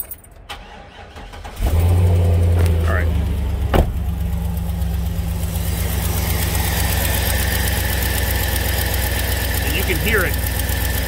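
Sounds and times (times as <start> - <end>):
pickup engine idling: 0.5 - 11.0
exhaust leak puffing: 3.5 - 11.0.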